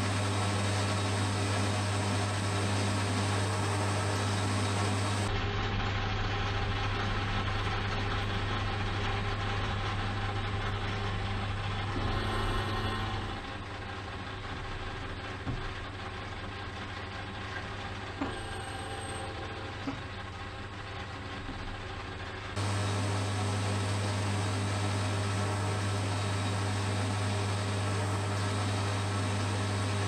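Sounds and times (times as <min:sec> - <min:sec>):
metal lathe running: 0:00.0 - 0:05.3, 0:10.8 - 0:13.7, 0:22.6 - 0:30.0.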